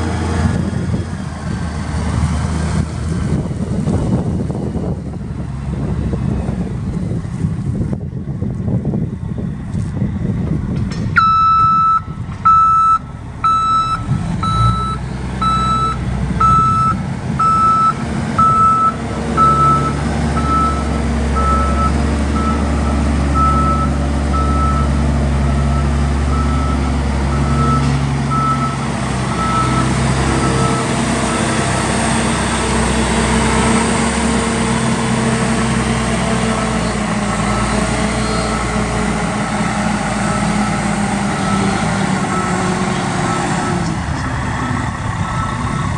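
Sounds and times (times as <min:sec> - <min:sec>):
diesel engine running: 0:00.0 - 0:45.9
reversing alarm beeping: 0:11.2 - 0:31.6, 0:37.5 - 0:38.8, 0:40.2 - 0:42.7, 0:44.6 - 0:45.9.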